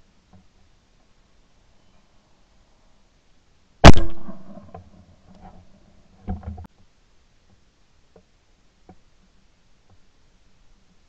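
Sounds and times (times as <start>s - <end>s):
shotgun shot echoing: 3.8s - 4.8s.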